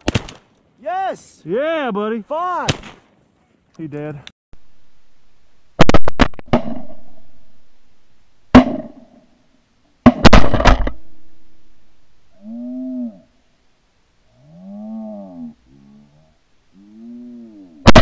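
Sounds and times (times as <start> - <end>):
shotgun shots echoing: 10.0 - 11.1.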